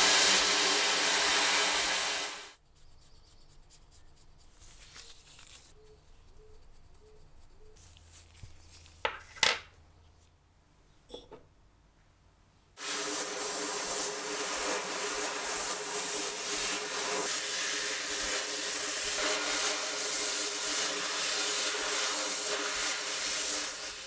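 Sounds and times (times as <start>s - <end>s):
sandblasting gun hissing: 0.0s - 2.6s, 12.8s - 24.0s.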